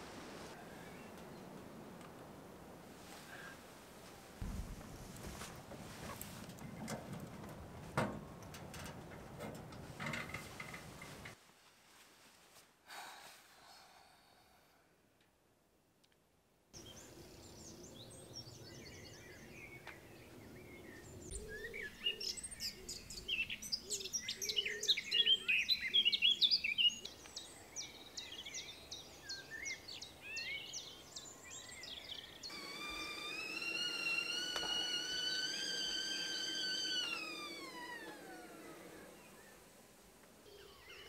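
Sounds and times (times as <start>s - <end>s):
birds singing: 16.8s - 39.8s, 40.4s - 41.0s.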